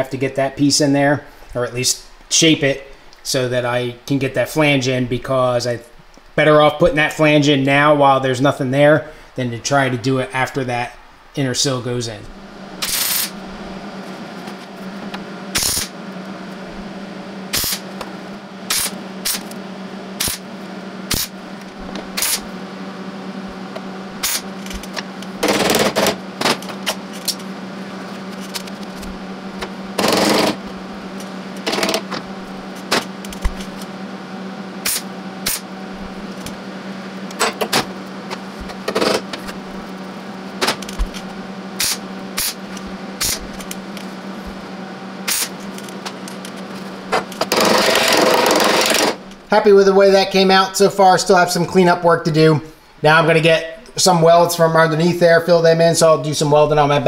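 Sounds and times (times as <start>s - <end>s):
steady low hum: 0.0s - 57.0s
welder crackling: 12.0s - 22.6s, 23.3s - 34.0s, 34.7s - 49.9s.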